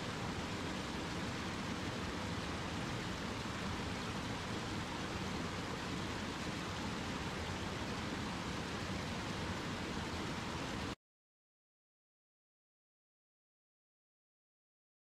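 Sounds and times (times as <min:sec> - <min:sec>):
water rushing and splashing: 0:00.0 - 0:11.0.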